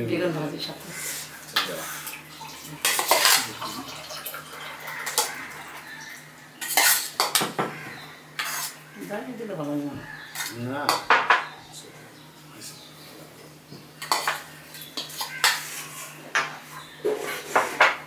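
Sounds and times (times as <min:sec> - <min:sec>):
metal spoon clinking on bowls: 0:02.8 - 0:07.7, 0:10.0 - 0:11.6, 0:14.0 - 0:15.7.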